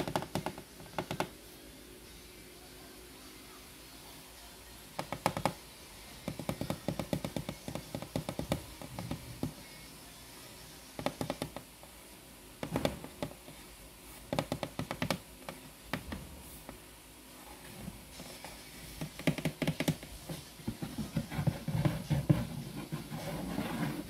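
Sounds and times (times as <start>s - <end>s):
fingers tapping on cardboard box: 0.0s - 1.3s, 5.0s - 5.6s, 6.3s - 9.6s, 11.0s - 11.7s, 14.3s - 16.2s, 19.0s - 20.1s.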